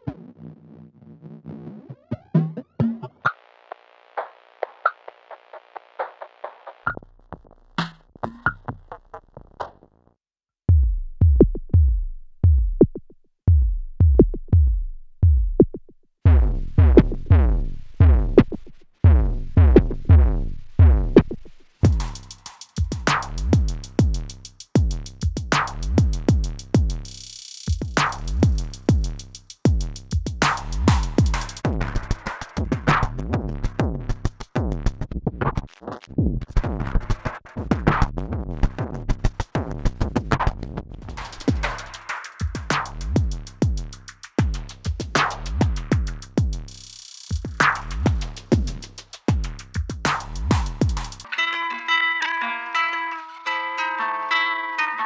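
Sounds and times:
drum machine beat: 0:02.1 - 0:03.3, 0:04.2 - 0:09.8, 0:10.7 - 0:35.6, 0:36.2 - 0:40.5, 0:41.1 - 0:51.3
booming kick drum: 0:10.7 - 0:18.4, 0:19.0 - 0:22.2, 0:22.8 - 0:27.1, 0:27.7 - 0:32.0, 0:42.5 - 0:46.7, 0:47.4 - 0:51.2
ticking hi-hats: 0:10.8 - 0:35.1, 0:41.1 - 0:51.3.

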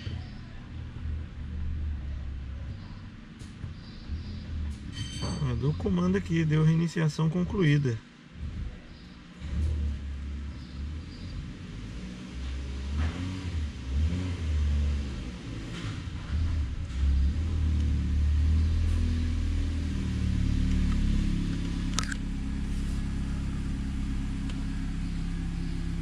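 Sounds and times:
car engine revving and idling: 0:07.4 - 0:26.0.

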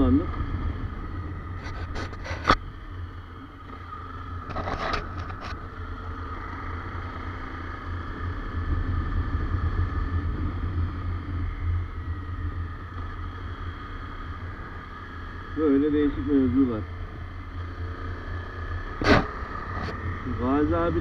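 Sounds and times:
wind rumbling on microphone: 0:00.0 - 0:17.6
motorcycle engine running: 0:00.0 - 0:21.0.

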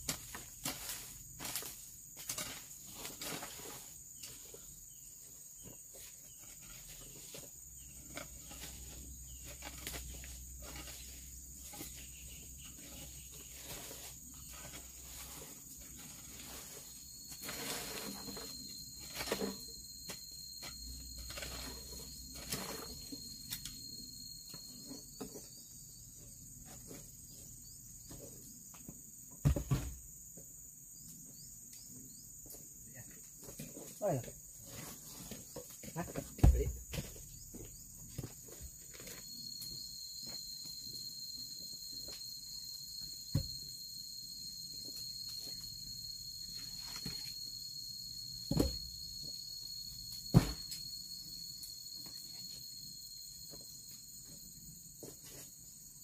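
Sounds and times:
insects droning: 0:00.0 - 0:56.0
loud thump: 0:50.3 - 0:50.7.

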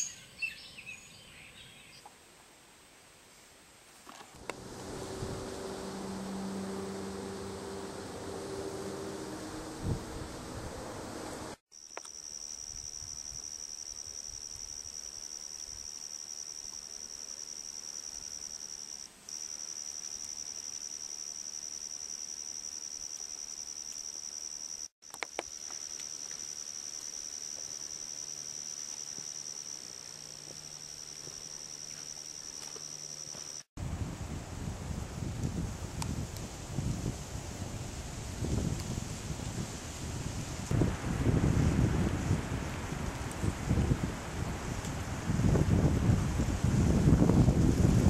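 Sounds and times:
insects trilling: 0:11.7 - 0:33.7.

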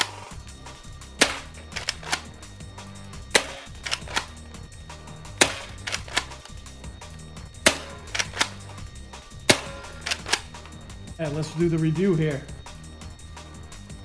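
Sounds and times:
background music: 0:00.0 - 0:14.0
toy blaster snapping: 0:01.2 - 0:02.3, 0:03.4 - 0:04.4, 0:05.4 - 0:06.6, 0:07.7 - 0:08.6, 0:09.5 - 0:10.6.

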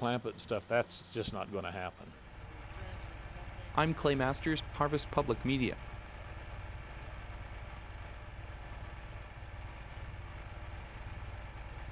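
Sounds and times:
drilling rig engine drone: 0:00.0 - 0:11.9.

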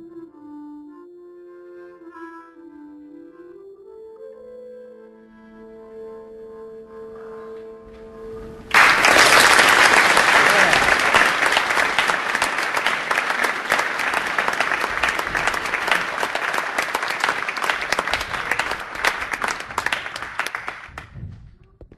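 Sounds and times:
audience applauding: 0:08.7 - 0:21.2.

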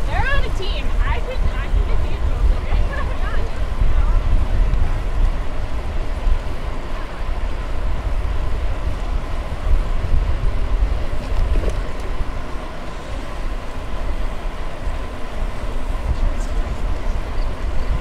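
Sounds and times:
wind on microphone: 0:00.0 - 0:18.0.

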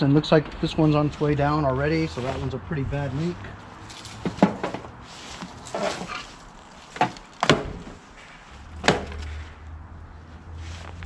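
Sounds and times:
soft handling noise: 0:00.9 - 0:11.0
knocks and clunks from engine work: 0:04.2 - 0:04.9, 0:07.0 - 0:09.4.

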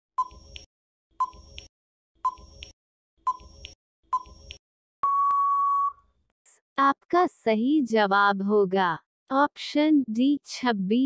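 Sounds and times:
countdown timer beep-ticks: 0:03.3 - 0:06.0.

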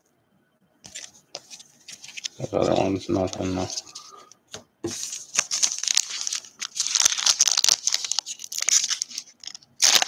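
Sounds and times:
plastic wrapper crinkling and tearing: 0:05.2 - 0:10.0.

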